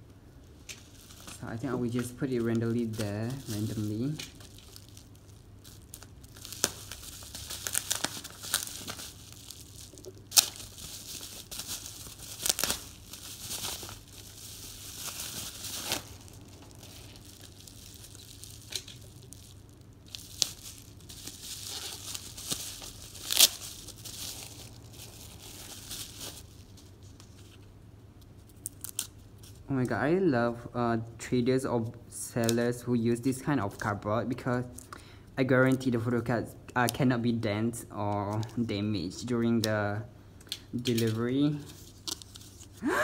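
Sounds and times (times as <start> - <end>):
packaging crinkling and tearing: 0.6 - 27.7, 28.4 - 29.6, 40.8 - 43.0
packaging snapping: 0.7 - 26.4.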